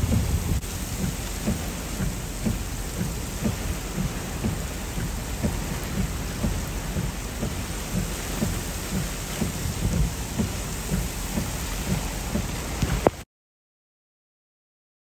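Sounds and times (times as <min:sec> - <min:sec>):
wind gusts on microphone: 0:00.0 - 0:01.5
heavy rain on pavement: 0:00.0 - 0:13.2.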